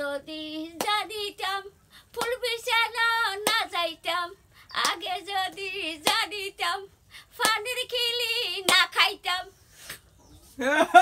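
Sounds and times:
sharp hand claps: 2.2s - 2.4s, 4.8s - 5.0s, 6.0s - 6.3s, 7.4s - 7.6s, 8.7s - 8.9s.

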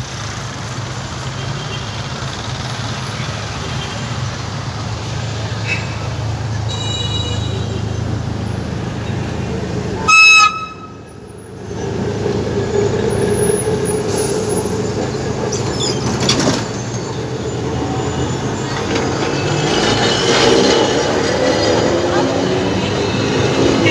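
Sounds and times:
tram rolling past: 7.6s - 23.9s
high-pitched horn toot: 10.0s - 11.0s.

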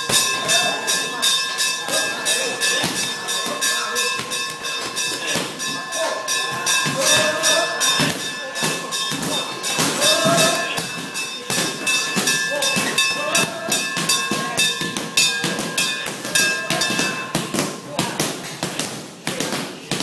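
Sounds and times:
steady high tones: 0.0s - 17.9s.

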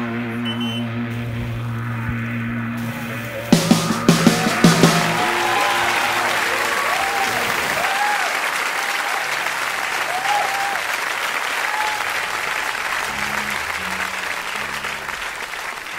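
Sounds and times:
crowd applauding: 3.6s - 15.9s.

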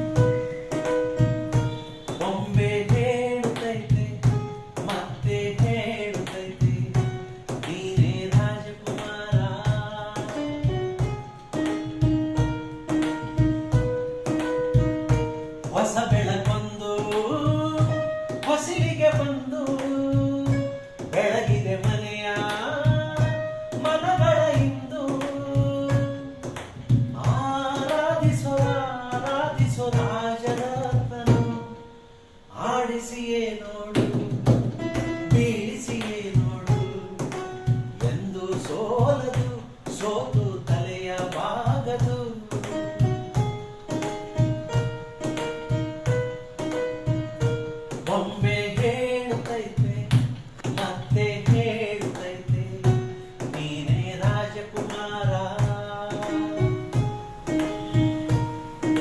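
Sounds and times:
man singing: 0.0s - 12.0s, 15.4s - 43.3s, 47.9s - 59.0s
phone keyboard melody: 0.0s - 59.0s
hands beating on wooden tabletop: 34.0s - 47.2s.

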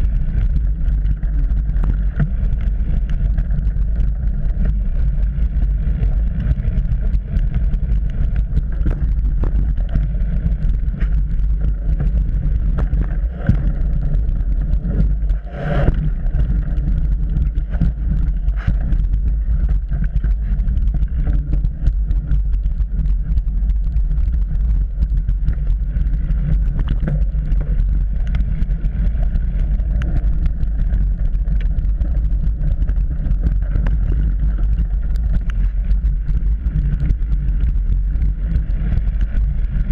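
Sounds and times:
bike rattling and knocking: 0.0s - 15.3s
bike tyres and wind rumbling: 0.0s - 39.9s.

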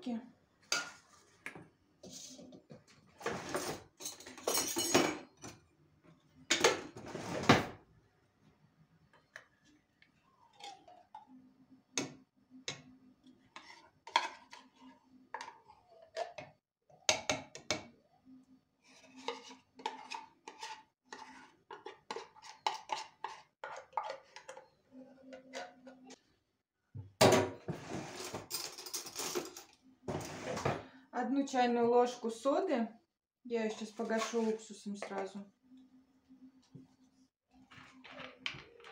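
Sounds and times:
metal spoon scraping a tin: 18.8s - 26.2s
cutlery rattling in drawer: 28.1s - 30.6s.

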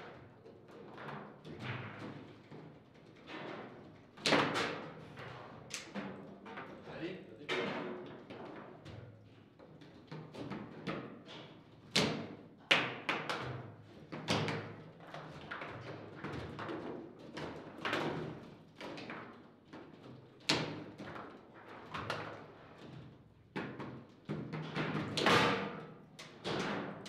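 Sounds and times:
foosball ball and rods clacking: 0.8s - 6.5s.

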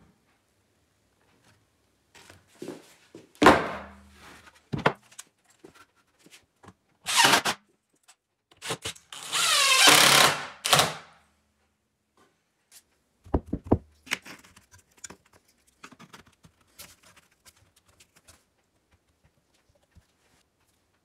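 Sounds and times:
power tool bursts: 9.2s - 11.0s.

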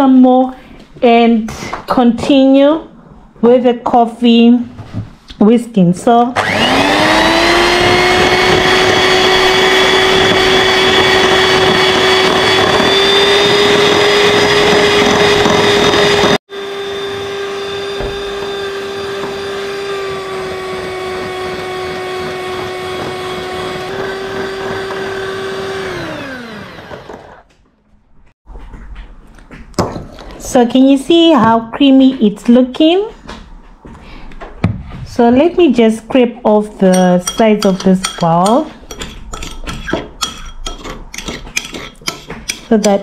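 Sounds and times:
electric hand mixer whining: 6.4s - 27.5s.

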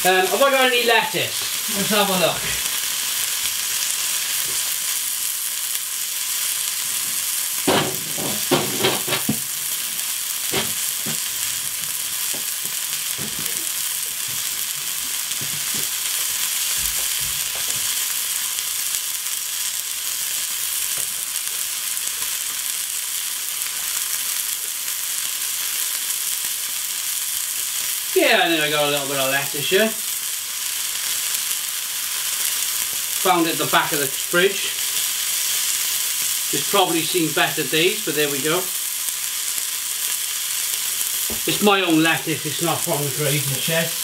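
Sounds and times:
burger patty sizzling: 0.0s - 44.0s
knocks: 7.7s - 9.4s.

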